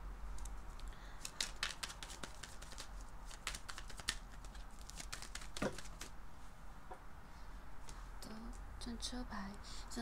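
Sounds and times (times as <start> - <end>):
cards clicking as handled: 0.4 - 6.1.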